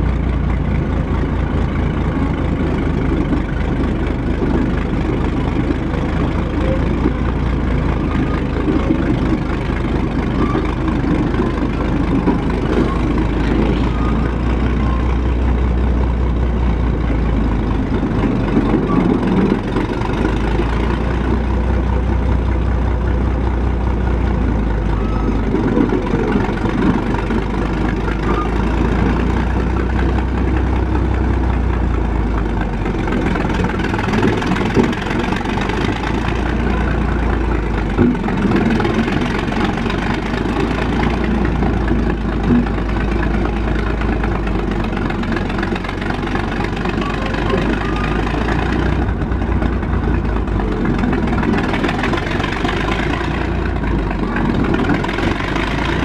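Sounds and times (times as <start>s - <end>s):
tractor engine deep throb: 0.0s - 56.0s.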